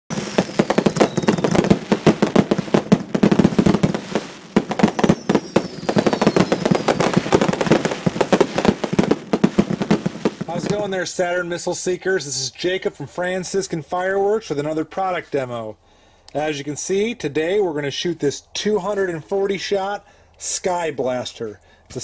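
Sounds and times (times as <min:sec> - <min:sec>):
falling whistle: 0:00.1 - 0:01.8, 0:04.9 - 0:07.4
fireworks bangs and crackling: 0:00.1 - 0:14.7.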